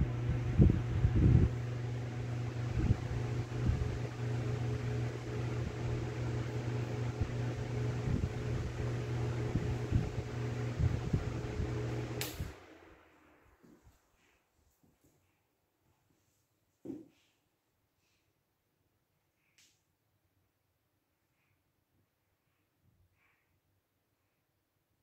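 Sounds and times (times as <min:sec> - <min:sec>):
desk fan running: 0:00.0 - 0:13.8
fan switch click: 0:12.2 - 0:12.6.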